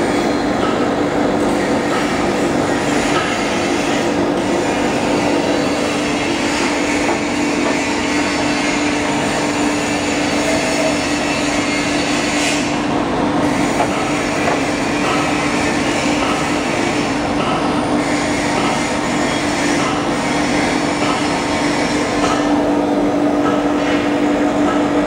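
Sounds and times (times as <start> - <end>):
foam cutting machine running: 0.0 - 25.0.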